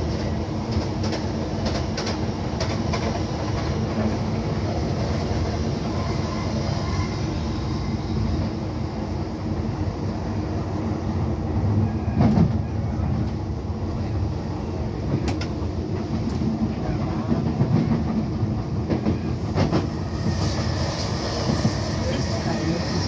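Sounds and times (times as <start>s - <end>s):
train rumbling on track: 0.0s - 23.0s
hiss: 19.9s - 23.0s.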